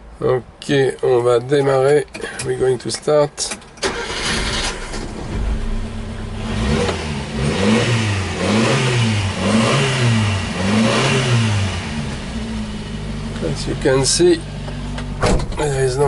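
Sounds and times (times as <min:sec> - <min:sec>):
truck engine revving: 0:03.9 - 0:13.0
engine idling: 0:11.4 - 0:16.0.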